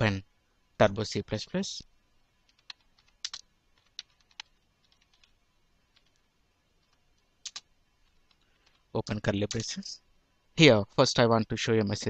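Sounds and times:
computer keyboard keystrokes: 2.5 - 6.2, 6.8 - 9.8.

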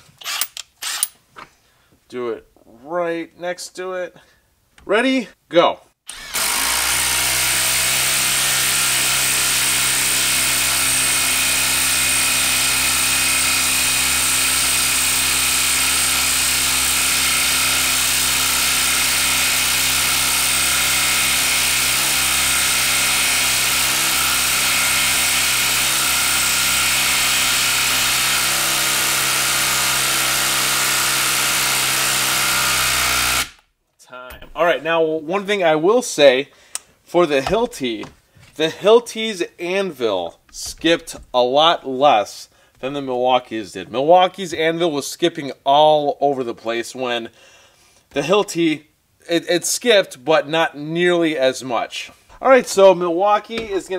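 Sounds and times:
impact driver hammering: 6.2 - 33.6, 37.4 - 37.8, 53.5 - 53.9.

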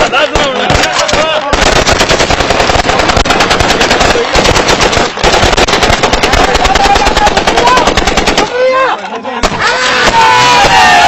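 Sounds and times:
automatic rifles firing bursts: 0.0 - 8.8.

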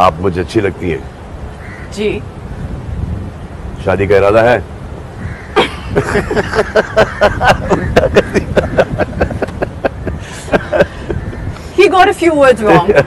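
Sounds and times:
hearty laughter: 5.6 - 11.5.

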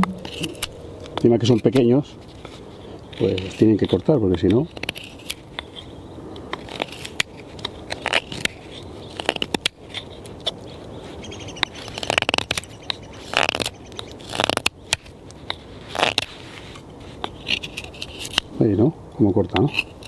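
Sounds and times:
knife carving wood: 0.0 - 18.6, 19.4 - 20.0.

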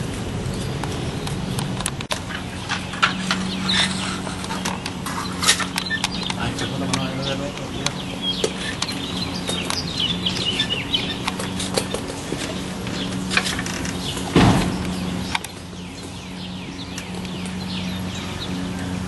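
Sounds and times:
small birds chirping: 0.0 - 19.0
footsteps on roof slates: 0.6 - 17.6
loud thump: 14.3 - 14.9.

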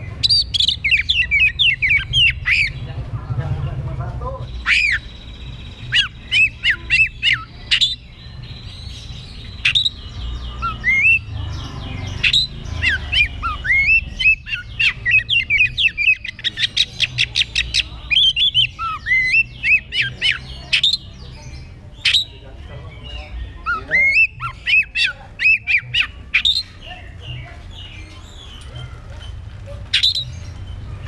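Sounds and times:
bird singing whistles and chirps: 0.0 - 2.8, 4.5 - 28.8, 29.9 - 30.9.

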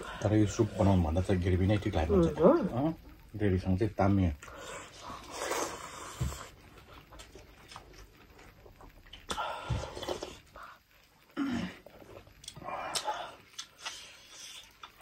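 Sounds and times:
wet lip smacks and chewing: 12.4 - 15.0.

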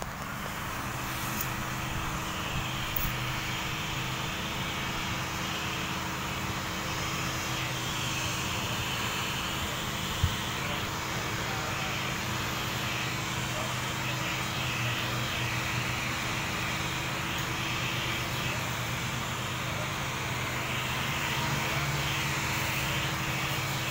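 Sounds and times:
heat gun blowing: 0.0 - 23.9.

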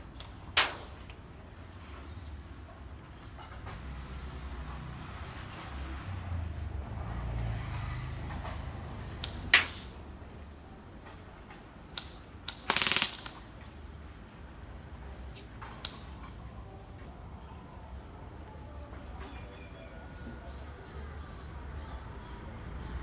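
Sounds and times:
airsoft guns firing: 9.5 - 10.0, 12.0 - 13.6.

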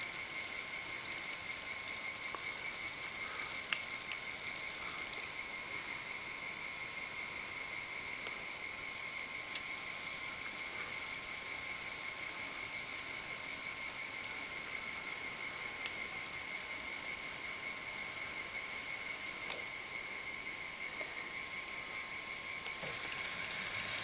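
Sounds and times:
faint ticks: 0.4 - 5.2, 15.3 - 16.6
servo motor whine: 20.9 - 24.0.

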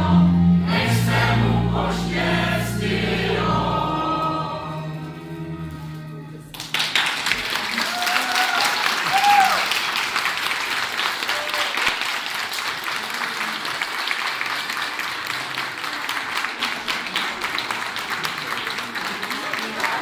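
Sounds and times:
audience applauding: 6.5 - 20.0.

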